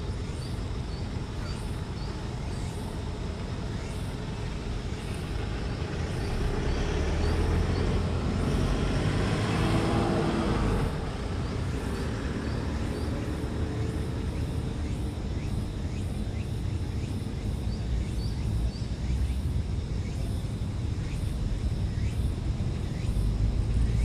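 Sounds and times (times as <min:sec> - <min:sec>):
background traffic noise: 0:00.0 - 0:24.0
vehicle passing: 0:04.9 - 0:14.8.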